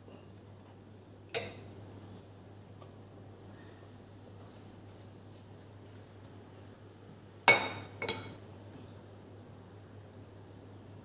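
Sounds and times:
ceramic bowl clinking: 0:07.5 - 0:08.4.

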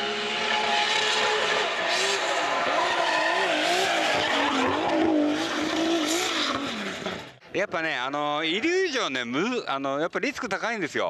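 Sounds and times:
car engine revving: 0:00.0 - 0:07.4.

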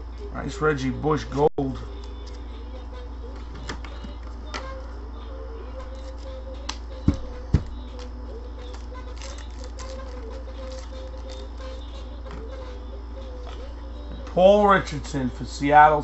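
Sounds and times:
steady low hum: 0:00.0 - 0:16.0
dull thumps: 0:06.9 - 0:07.9
cards clicking and rustling: 0:07.9 - 0:12.4.

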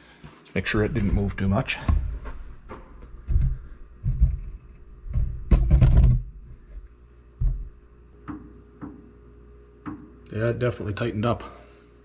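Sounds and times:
dull thumps and knocks: 0:00.8 - 0:06.4, 0:07.4 - 0:09.0.

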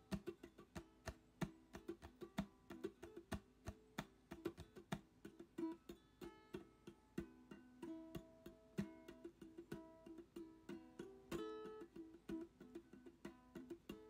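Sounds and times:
crisp clicking beat: 0:00.0 - 0:14.0
plucked string music: 0:00.0 - 0:14.0.

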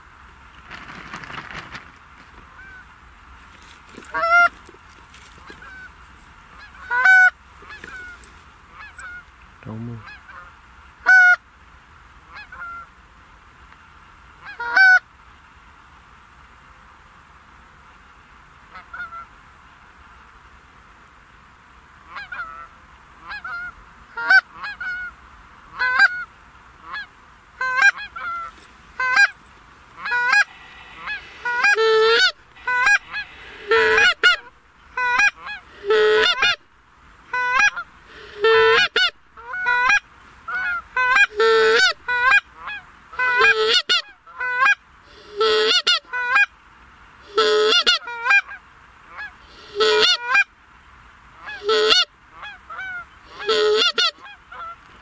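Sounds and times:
goose honking and clucking: 0:02.4 - 0:02.9, 0:03.9 - 0:09.3, 0:10.0 - 0:11.4, 0:12.3 - 0:12.9, 0:14.4 - 0:15.0, 0:22.1 - 0:46.5, 0:47.2 - 0:50.5, 0:51.4 - 0:54.8.

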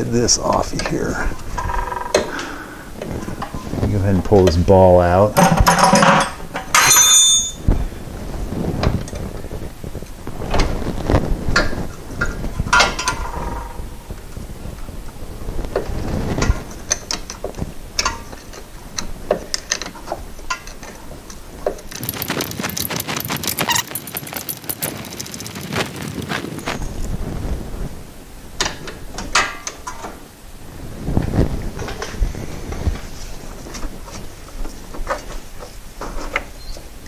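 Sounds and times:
metallic clicks and clanks: 0:05.4 - 0:07.7, 0:15.8 - 0:26.2
rapid rattling clicks: 0:16.4 - 0:26.8.

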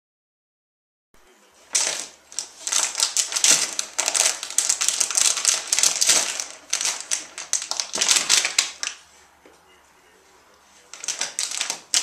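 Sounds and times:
paper crinkling and rustling: 0:01.6 - 0:09.1, 0:10.8 - 0:12.0.

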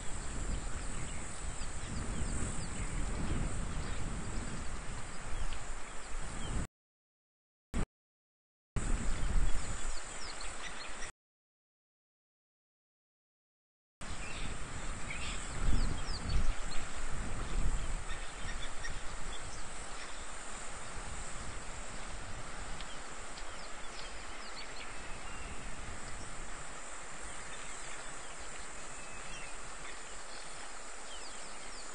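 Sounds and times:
steady high hiss: 0:14.0 - 0:31.9.

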